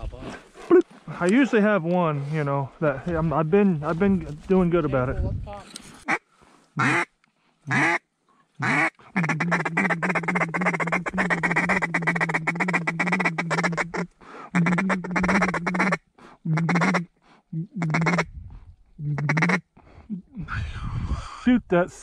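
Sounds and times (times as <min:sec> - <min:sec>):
duck call fast chattering: 0:06.8 - 0:07.1, 0:07.7 - 0:08.0, 0:08.6 - 0:17.1, 0:17.8 - 0:18.3, 0:19.1 - 0:19.6
duck call quacks: 0:06.8 - 0:07.1, 0:07.7 - 0:08.0, 0:08.6 - 0:17.1, 0:17.8 - 0:18.3, 0:19.1 - 0:19.6.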